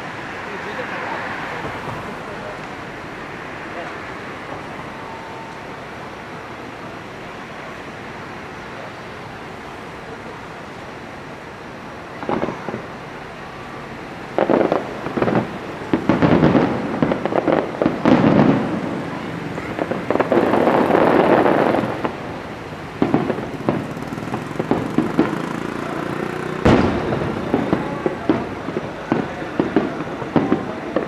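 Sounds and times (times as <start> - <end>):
fireworks booming and crackling: 0.0 - 31.0
sharp firework bang: 12.1 - 12.9, 14.4 - 22.2, 23.0 - 25.5, 26.6 - 31.0.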